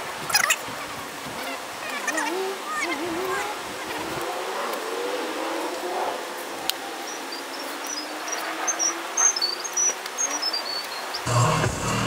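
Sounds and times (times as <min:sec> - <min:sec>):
electronic music with beat: 0:11.3 - 0:12.0.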